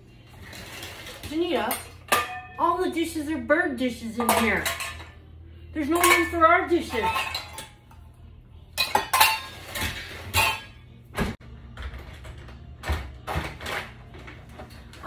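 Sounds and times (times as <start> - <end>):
dishes and cutlery clattering: 0.4 - 2.7, 4.2 - 8.0, 8.8 - 12.2.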